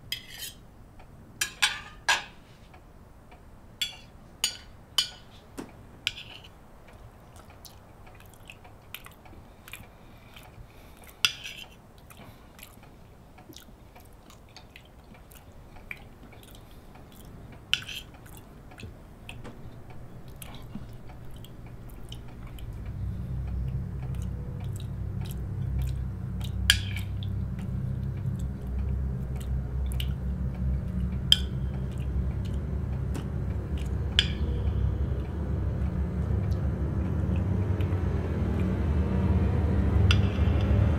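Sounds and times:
cutlery clinking on plates: 1.4 - 2.4, 3.8 - 5.3
quiet chewing: 6.2 - 34.1
low rumble: 19.5 - 40.9.

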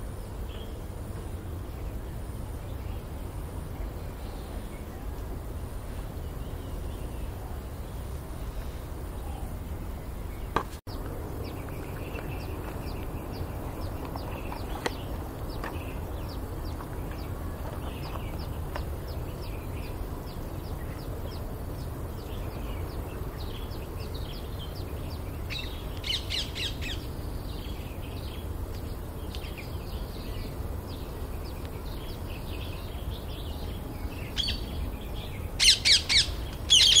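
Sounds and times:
steady low rumble: 0.0 - 36.7
parakeets chirping and screeching: 35.6 - 37.0.

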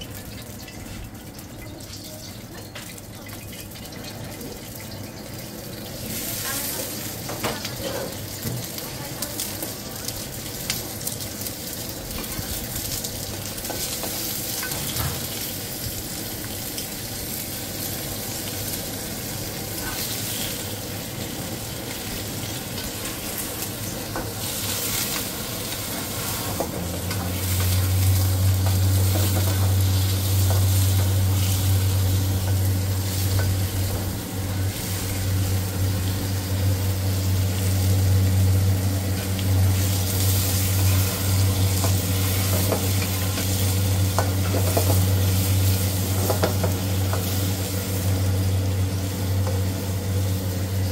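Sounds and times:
rice sizzling in a wok: 0.0 - 50.9
steady low hum: 20.7 - 50.9.

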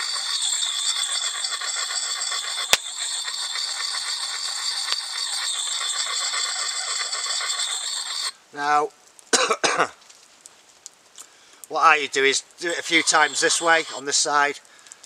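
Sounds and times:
sharpening puck rasping on axe blade: 0.0 - 8.3, 12.7 - 14.1.

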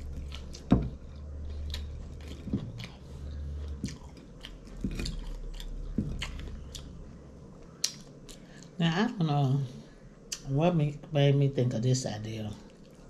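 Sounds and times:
close chewing with mouth smacks: 0.0 - 8.8, 12.6 - 13.0
low steady hum: 0.0 - 13.0.

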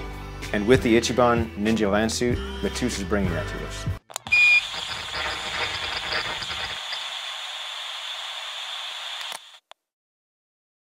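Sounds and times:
high electronic beep: 4.3 - 7.0
static hiss: 4.3 - 9.6.

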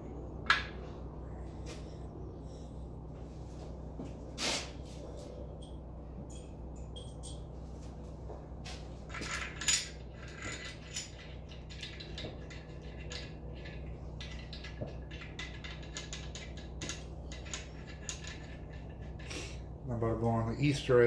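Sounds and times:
steady low hum: 0.0 - 21.0
metal parts clinking: 9.1 - 19.3.

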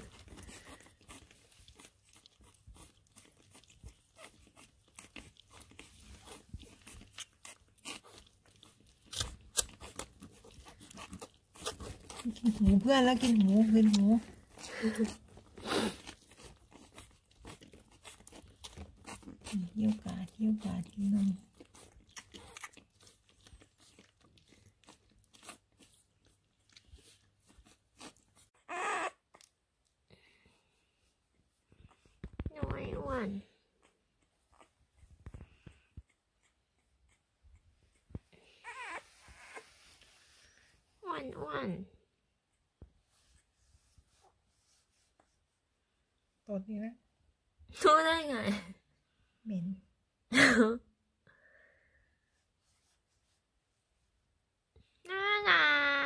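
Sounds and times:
puppy suckling from bottle: 0.0 - 29.6.

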